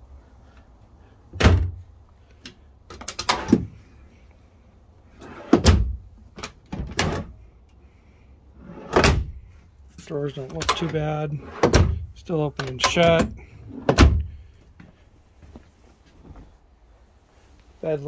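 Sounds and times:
wooden drawers opening and shutting: 2.9s - 3.8s, 5.2s - 7.4s, 8.6s - 9.4s, 10.4s - 12.0s, 12.6s - 14.3s.

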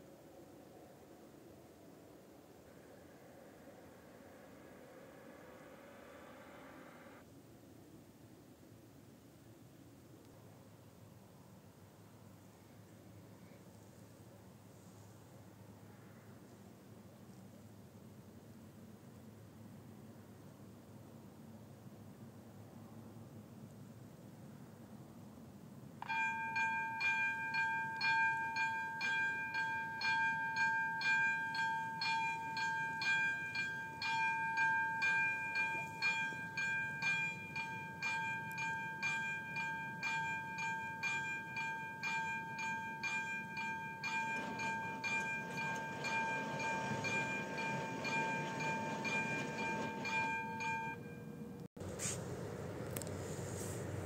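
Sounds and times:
level crossing warning bell: 26.0s - 51.7s
low mechanical rumble of barriers: 44.1s - 54.0s.

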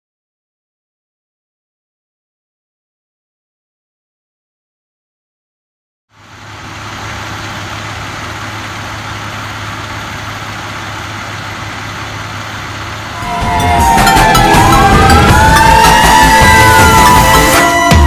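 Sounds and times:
diesel engine idling: 6.1s - 18.0s.

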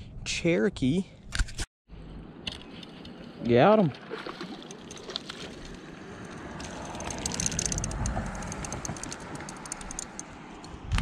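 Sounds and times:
low rumble of handling: 4.7s - 11.0s
spinning reel clicking: 6.6s - 10.2s.

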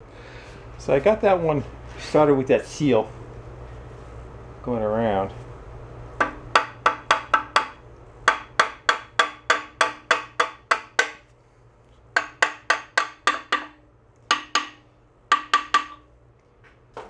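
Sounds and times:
hammer striking metal sleeve: 6.2s - 11.2s, 12.2s - 16.1s.

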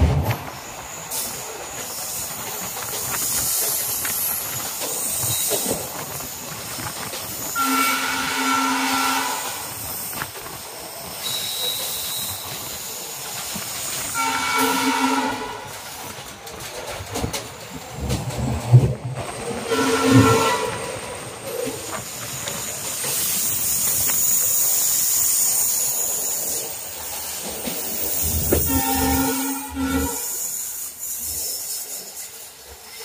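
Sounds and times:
train wind and wheel noise: 0.0s - 33.0s
locomotive horn blast: 7.6s - 9.6s, 14.2s - 15.7s, 19.7s - 20.9s, 28.5s - 30.4s.

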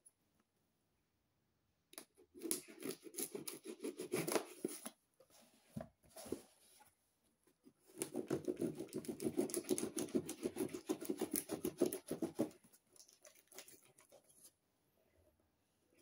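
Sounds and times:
scratching packing tape on box: 2.4s - 4.8s, 8.0s - 12.6s.

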